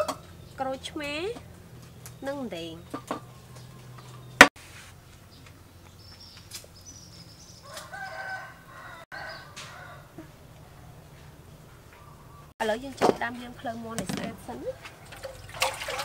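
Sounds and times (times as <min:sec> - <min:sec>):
rooster crowing: 0:07.6 - 0:11.2.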